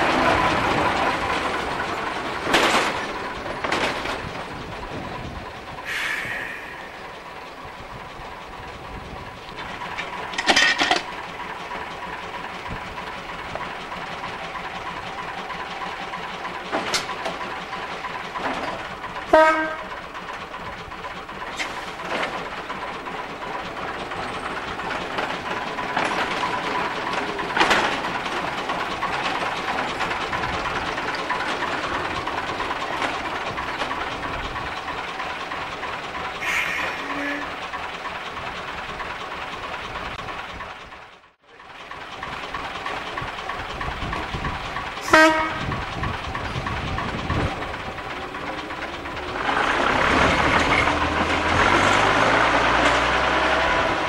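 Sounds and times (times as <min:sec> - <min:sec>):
diesel locomotive engine running: 0:00.0 - 0:54.0
sharp metallic clanks and knocks: 0:09.7 - 0:11.2.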